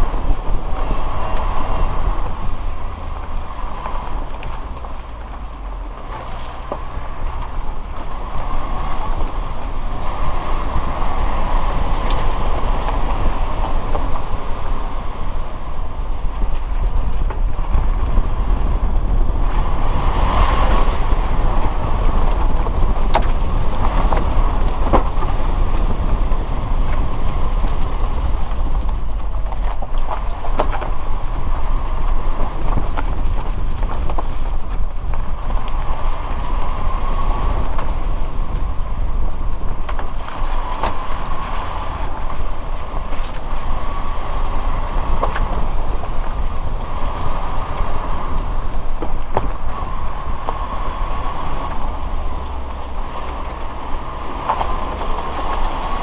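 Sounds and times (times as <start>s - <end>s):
car engine and road rumble: 0.0s - 56.0s
clicks and knocks from bumps: 26.8s - 36.6s.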